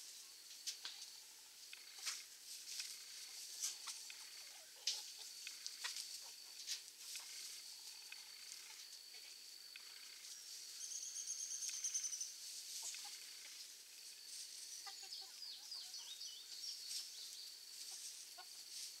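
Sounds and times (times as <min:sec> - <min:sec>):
steady high-pitched drone: 0:00.0 - 0:17.2
chickens clucking: 0:00.6 - 0:10.6, 0:11.7 - 0:18.9.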